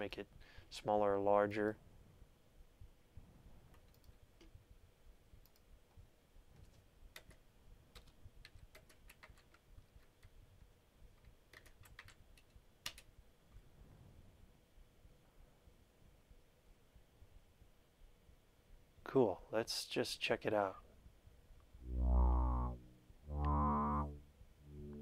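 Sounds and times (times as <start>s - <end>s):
keyboard typing: 7.2s - 10.3s, 11.2s - 13.1s.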